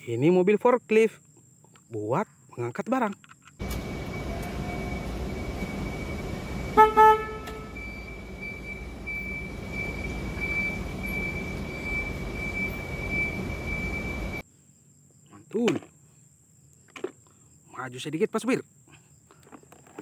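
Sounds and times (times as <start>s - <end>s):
high steady whine: 3.6s - 14.4s
forklift horn beeps: 3.8s - 14.4s.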